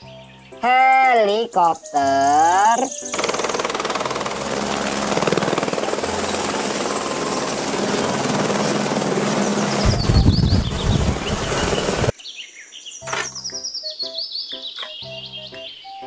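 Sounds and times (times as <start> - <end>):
helicopter rotor beat: 3.1 - 12.1
high turbine whine: 3.1 - 12.1
heavy low rumble: 9.6 - 12.1.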